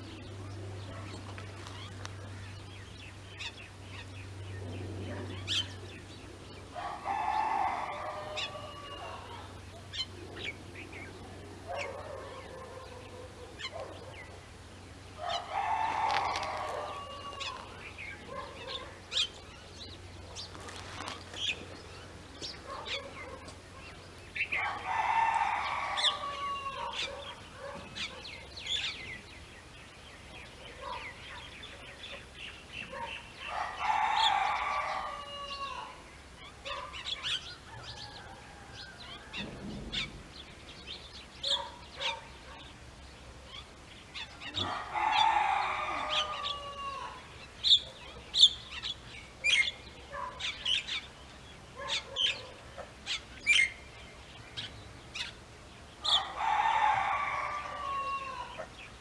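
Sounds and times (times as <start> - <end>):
rooster crowing: 6.7 - 9.6, 15.2 - 18.8, 24.5 - 27.4, 33.4 - 36.1, 37.5 - 40.0, 44.4 - 47.4, 56.0 - 58.8.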